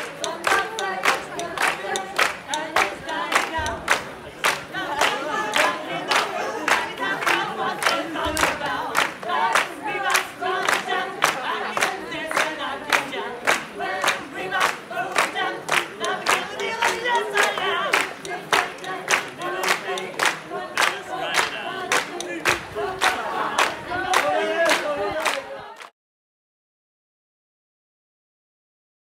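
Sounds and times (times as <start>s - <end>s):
crowd singing unaccompanied: 0.0s - 25.9s
people clapping a steady beat: 0.0s - 25.9s.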